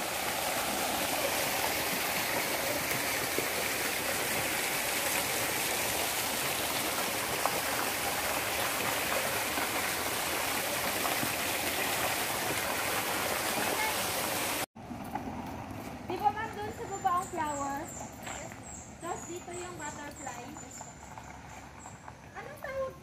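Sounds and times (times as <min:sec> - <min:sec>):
flowing water rushing: 0:00.0 - 0:14.7.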